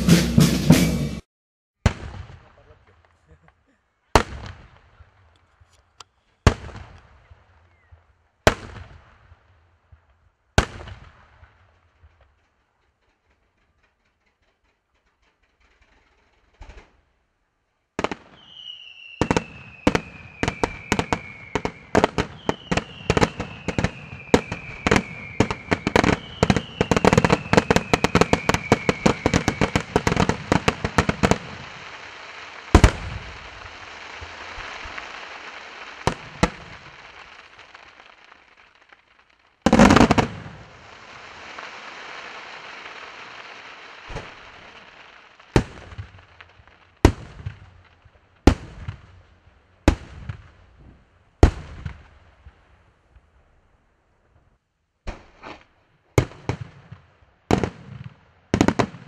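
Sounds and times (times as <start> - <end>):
rapid firework bangs: 1.8 - 2.7, 4.1 - 5.2, 6.4 - 12.3, 18.0 - 52.5, 56.2 - 59.0
firework whistles falling in pitch: 18.4 - 31.8
steady firework hiss: 19.7 - 47.0.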